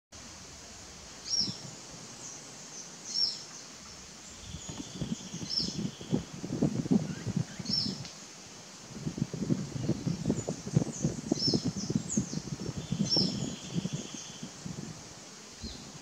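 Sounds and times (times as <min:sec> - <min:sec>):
bird singing: 0:01.2 - 0:06.3, 0:07.0 - 0:08.0, 0:09.8 - 0:14.7
low rustling thumps: 0:04.4 - 0:08.0.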